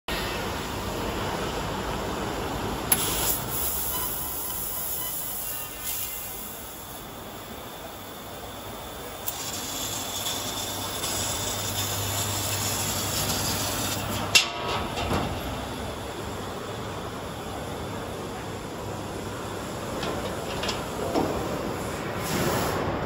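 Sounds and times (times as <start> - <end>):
laser cutter hissing: 2.9 - 14.3.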